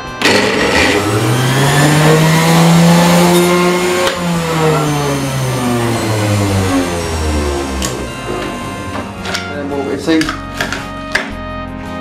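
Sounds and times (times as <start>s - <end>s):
food processor motor whirring: 0.0s - 9.4s.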